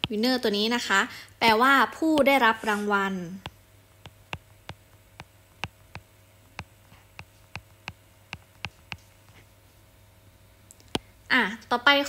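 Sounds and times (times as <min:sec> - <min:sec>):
faint electrical hum: 0:00.0 - 0:12.0
stylus clicking on screen: 0:03.4 - 0:09.1.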